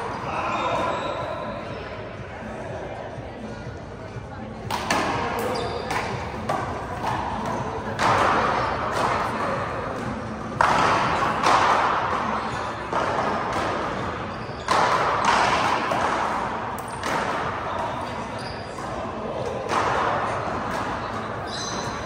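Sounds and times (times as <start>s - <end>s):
handball smacks echoing: 10.0s - 12.3s.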